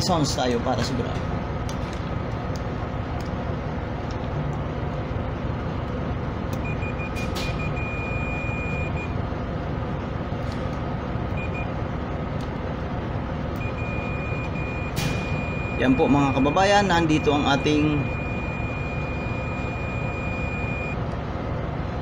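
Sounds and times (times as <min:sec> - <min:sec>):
steady background noise: 0:00.0 - 0:22.0
multimeter continuity beep: 0:06.6 - 0:09.2, 0:11.4 - 0:11.7, 0:13.6 - 0:21.0.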